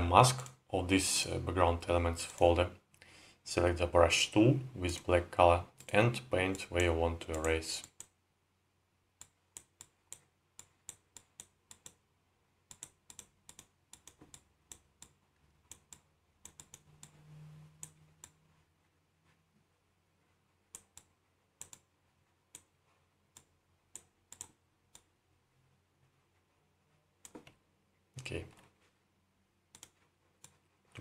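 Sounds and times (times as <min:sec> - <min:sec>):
computer keys and mouse clicking: 0:00.3 - 0:00.6, 0:05.8 - 0:08.2, 0:09.2 - 0:12.0, 0:12.7 - 0:18.4, 0:20.7 - 0:21.9, 0:22.5 - 0:25.2, 0:27.2 - 0:27.6, 0:29.7 - 0:31.0.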